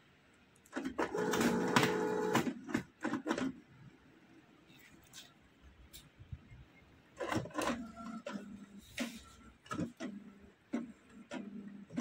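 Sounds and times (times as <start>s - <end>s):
printer motor hum: 1.0s - 2.7s.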